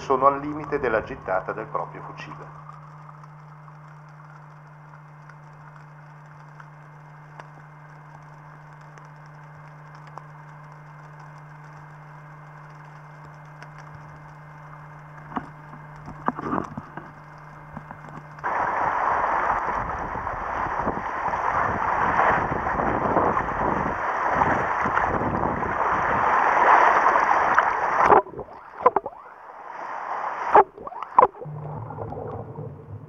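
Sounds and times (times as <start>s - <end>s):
faint crackling clicks: 0.0s - 18.6s, 19.4s - 32.9s
low underwater hum: 0.0s - 33.0s
knocks and clicks: 28.1s - 29.2s.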